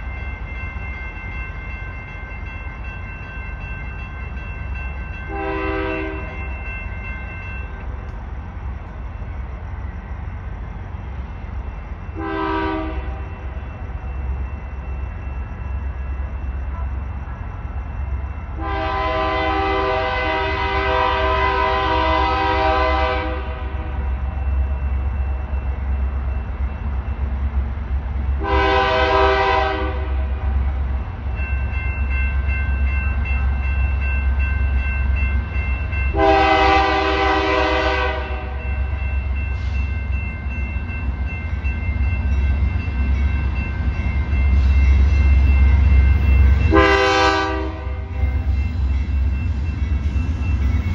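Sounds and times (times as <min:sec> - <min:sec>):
train rumble: 0:00.0 - 0:50.9
locomotive air horn: 0:05.3 - 0:06.4, 0:12.2 - 0:13.2, 0:18.6 - 0:23.9, 0:28.4 - 0:30.4, 0:36.1 - 0:38.6, 0:46.7 - 0:48.1.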